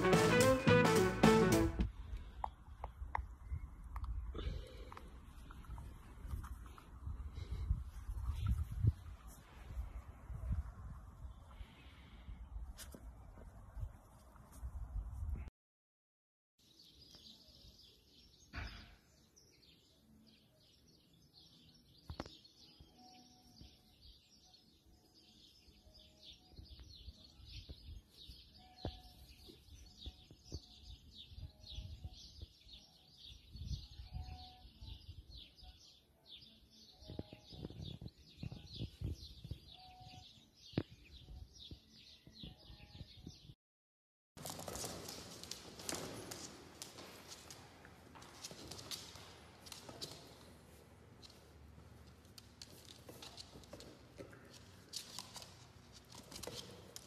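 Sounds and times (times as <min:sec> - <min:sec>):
small birds chirping: 0:16.6 - 0:43.6.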